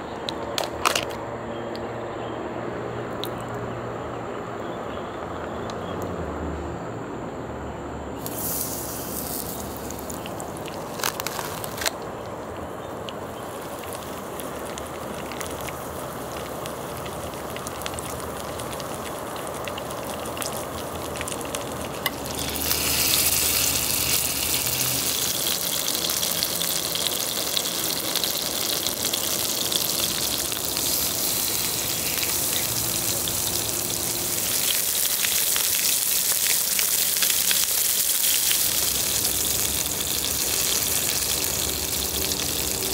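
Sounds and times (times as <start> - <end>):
food sizzling on griddle: 8.2 - 11.9, 12.8 - 42.9
broth boiling hard: 8.2 - 42.9.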